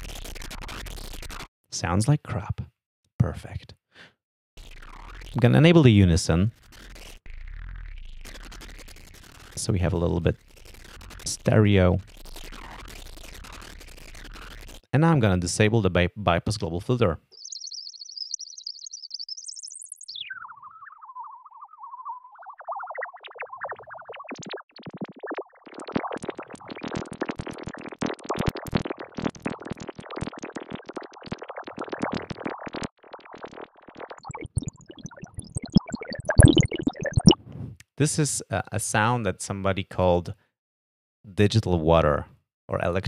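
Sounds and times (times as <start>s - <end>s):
synthesizer digital water sound: 0.0s - 1.5s, 4.6s - 14.9s, 17.3s - 37.4s
jittery chirping blips: 17.2s - 37.4s.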